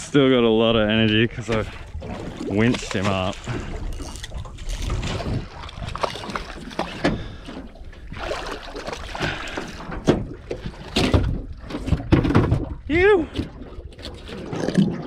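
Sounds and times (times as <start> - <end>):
water sloshing around boat: 0.0 - 15.0
wind on microphone: 0.4 - 7.4.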